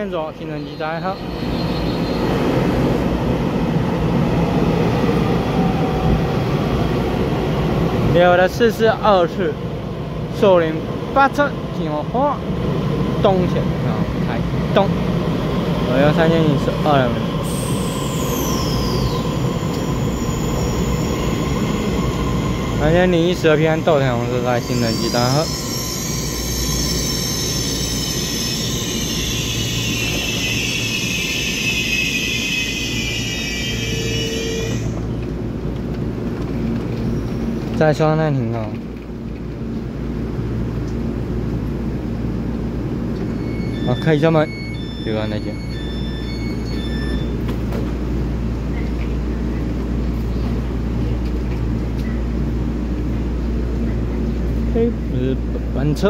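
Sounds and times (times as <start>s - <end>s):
train wheels rumbling: 0.0s - 56.0s
high whining tones: 17.4s - 35.2s, 43.2s - 47.6s
electronic chime: 23.7s - 34.9s, 43.4s - 47.4s.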